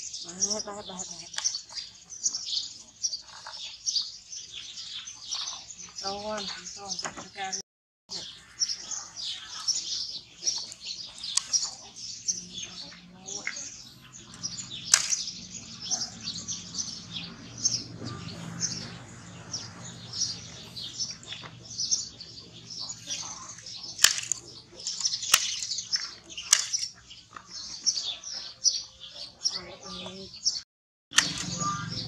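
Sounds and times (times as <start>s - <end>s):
small birds chirping: 0.0s - 32.0s
sharp clicks: 10.5s - 11.8s, 13.4s - 15.8s, 23.0s - 27.0s, 31.1s - 32.0s.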